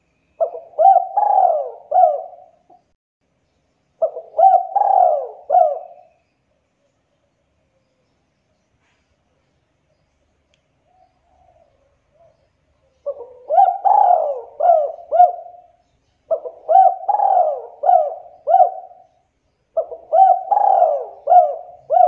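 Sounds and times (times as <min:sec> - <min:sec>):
dove cooing: 0:00.4 - 0:02.8, 0:04.0 - 0:06.2, 0:10.9 - 0:19.2, 0:19.8 - 0:22.0.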